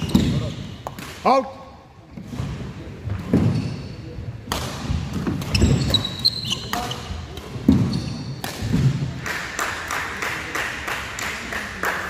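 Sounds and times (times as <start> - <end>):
shoe squeaks: 0.0 - 0.8, 3.4 - 4.2, 5.4 - 8.4
murmur of indoor hall: 0.0 - 12.0
racket hitting shuttlecock: 4.5 - 6.1, 6.7 - 9.0.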